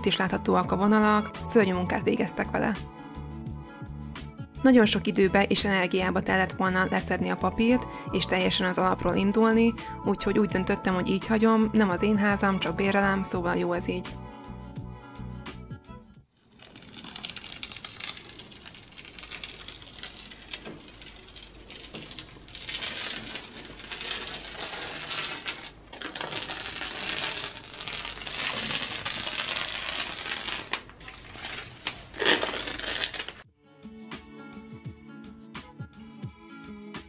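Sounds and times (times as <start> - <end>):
masking tape peeling off wall: 16.4 - 33.4.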